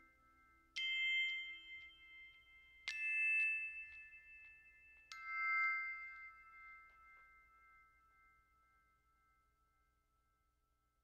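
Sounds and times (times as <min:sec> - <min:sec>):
bell-like notes ringing: 0:00.0 - 0:08.7.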